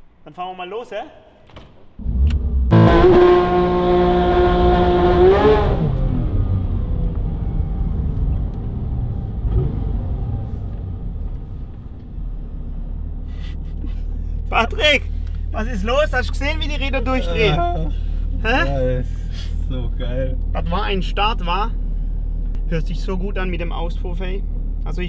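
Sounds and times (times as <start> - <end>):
sports car engine revving: 2.0 - 11.8.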